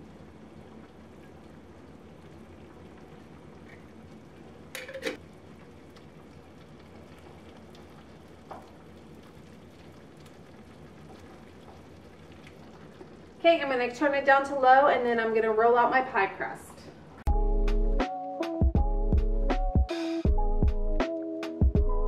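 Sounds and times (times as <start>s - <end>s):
filling simmering in a skillet: 0.0s - 14.6s
glass jar set down: 4.8s - 5.2s.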